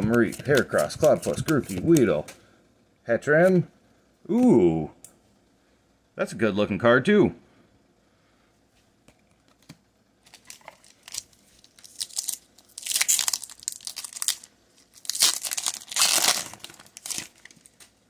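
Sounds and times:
foil wrapper crinkling and tearing: 10.2s - 17.9s.

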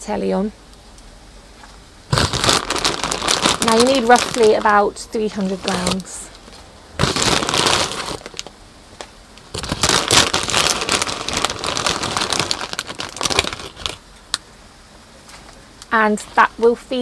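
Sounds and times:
plastic packet crinkling: 2.1s - 6.1s, 7.0s - 8.5s, 9.5s - 14.0s.

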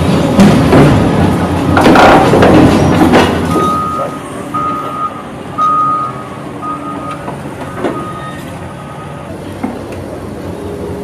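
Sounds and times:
heavy machinery rumble: 0.0s - 11.0s
reversing alarm beeps: 3.5s - 9.2s.

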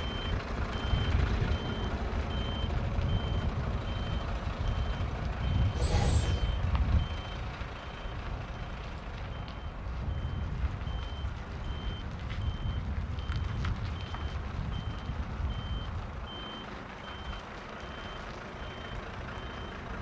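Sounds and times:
diesel engine running: 0.0s - 20.0s
truck reversing alarm beeps: 0.0s - 20.0s
air brake hiss: 5.8s - 6.6s.

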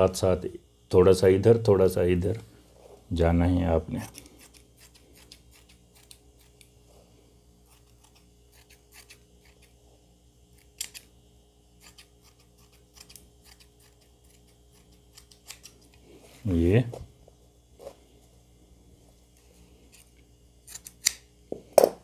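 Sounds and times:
scissors snipping fabric: 7.7s - 9.7s.

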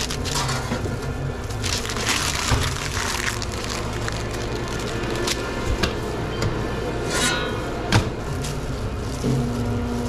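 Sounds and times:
equipment hum: 0.0s - 10.0s
paper rustle: 1.5s - 5.5s.

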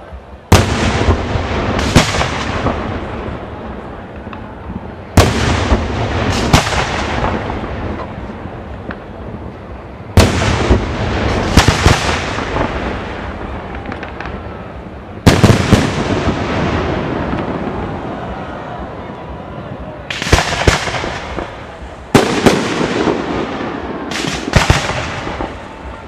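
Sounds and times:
rolling echo: 0.0s - 26.0s
firework shells booming: 0.5s - 3.5s, 4.1s - 9.1s, 10.2s - 14.5s, 15.2s - 17.8s, 20.1s - 25.9s
sharp firework cracks: 0.5s - 9.1s, 10.2s - 17.9s, 20.1s - 26.0s.

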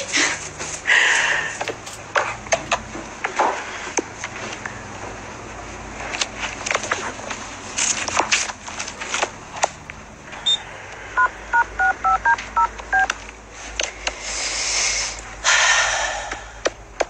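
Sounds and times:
short high beep: 10.4s - 10.6s
touch-tone key beeps: 10.4s - 10.6s, 11.2s - 13.1s.

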